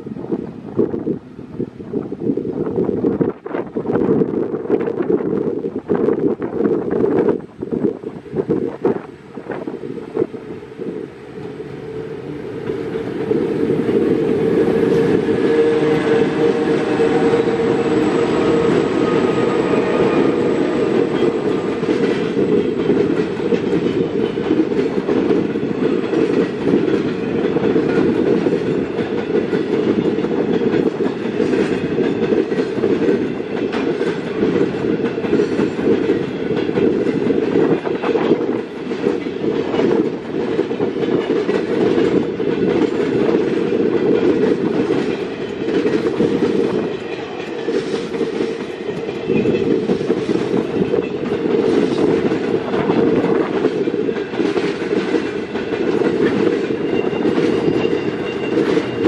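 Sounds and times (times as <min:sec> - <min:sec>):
freight train wagons rumbling: 0:00.0 - 0:59.0
wheels clicking over rail joints: 0:16.2 - 0:59.0.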